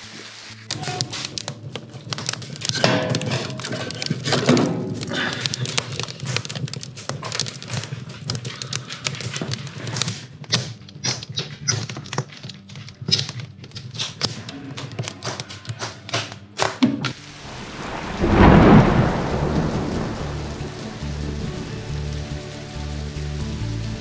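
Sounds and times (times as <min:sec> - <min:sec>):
wood fire crackling: 0:00.0 - 0:11.2, 0:17.1 - 0:24.0.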